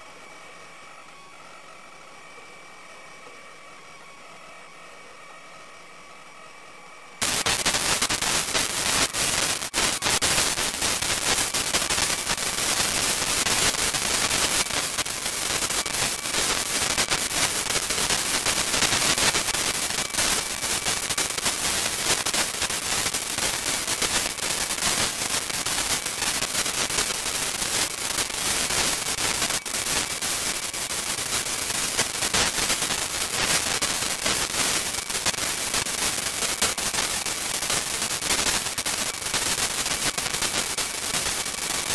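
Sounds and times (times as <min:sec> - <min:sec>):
faint high whine: 0:00.0 - 0:41.9
crackling radio static: 0:07.2 - 0:41.9.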